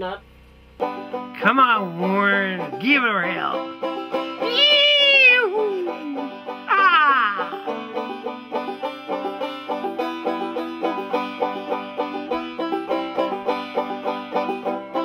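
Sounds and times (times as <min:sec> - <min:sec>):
banjo picking: 0:00.8 - 0:15.0
person whooping: 0:04.4 - 0:07.7.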